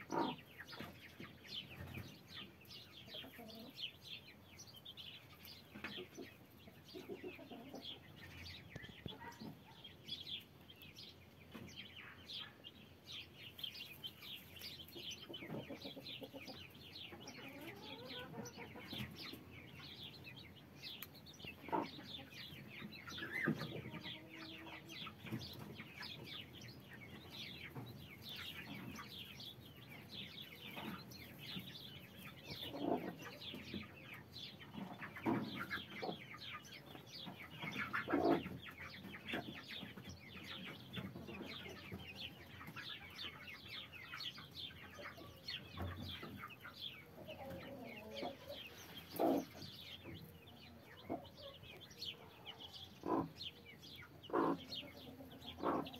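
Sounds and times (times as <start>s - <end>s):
chicks peeping: 0.0s - 55.9s
hen clucking low: 15.3s - 19.0s, 54.1s - 55.9s.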